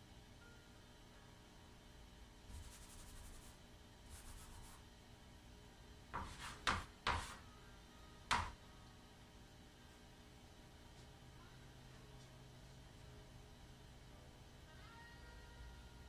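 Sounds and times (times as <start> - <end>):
chalk taps: 2.5 - 3.5, 4.1 - 4.8, 6.1 - 7.4, 8.3 - 8.6
chalk scratching on chalkboard: 2.5 - 4.8, 6.2 - 7.4.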